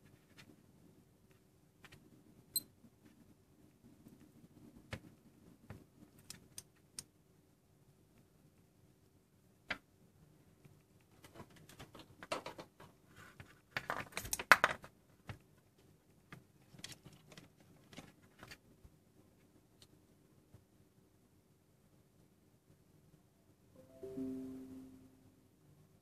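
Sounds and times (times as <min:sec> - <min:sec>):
faint steady hum: 0:17.6 - 0:26.0.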